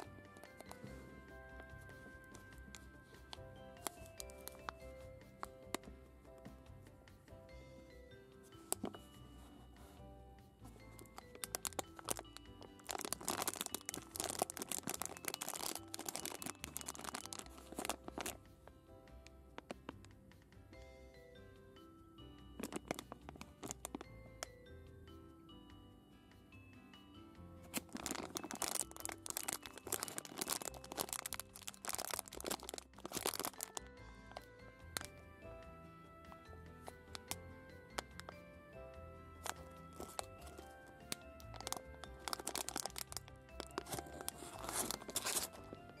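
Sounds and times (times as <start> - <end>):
plastic wrapper crinkling: 0.0 - 1.0, 2.0 - 5.7, 10.8 - 18.4, 22.6 - 24.1, 27.7 - 35.1, 36.8 - 38.4, 39.4 - 46.0
soft background music: 0.0 - 46.0.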